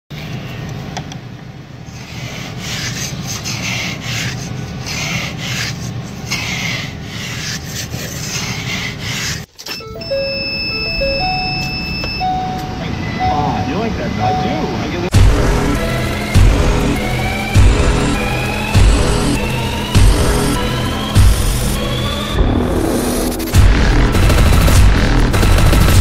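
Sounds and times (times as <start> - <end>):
low steady hum: 9.6 - 24.2
high electronic tone: 9.7 - 25.5
short low electronic notes: 9.8 - 25.9.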